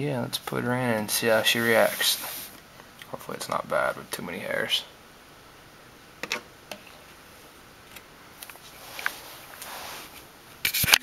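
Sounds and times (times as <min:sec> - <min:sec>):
soft plastic rustle: 0:08.4 - 0:11.0.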